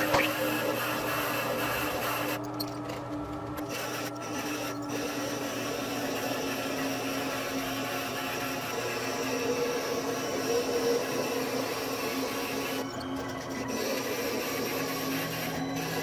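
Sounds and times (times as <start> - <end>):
lathe motor hum: 0.0 - 16.0
tool scraping wood on lathe: 3.7 - 12.8.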